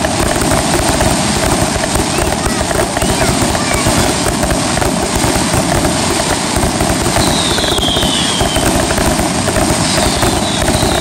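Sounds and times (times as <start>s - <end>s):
fireworks bangs and crackling: 0.0s - 11.0s
firework whistle falling in pitch: 7.2s - 8.8s, 9.8s - 11.0s.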